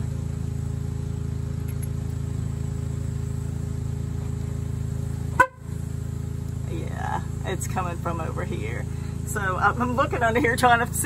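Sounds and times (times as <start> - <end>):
truck horn low buzz: 5.2 - 5.9.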